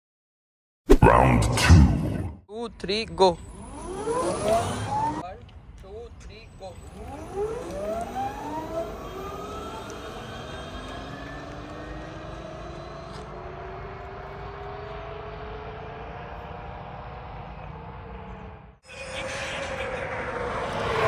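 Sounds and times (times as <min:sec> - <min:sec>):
electric motor whine: 0:03.4 - 0:05.2, 0:06.8 - 0:14.6.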